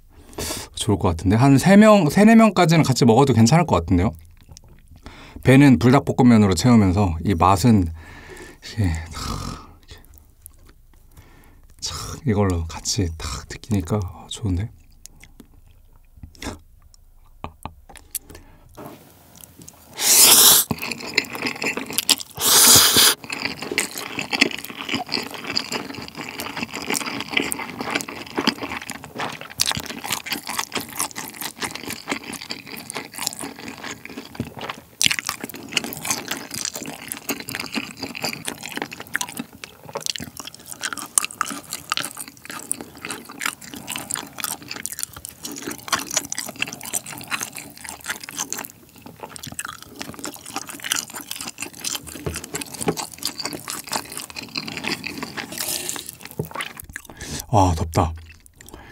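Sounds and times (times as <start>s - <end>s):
wet chewing: 4.1s - 5.4s, 7.9s - 12.6s, 13.2s - 18.5s, 19.4s - 58.9s
sticky mouth clicks: 14.9s - 18.4s, 22.3s - 23.2s
loud slurping: 19.9s - 20.9s, 22.3s - 23.2s.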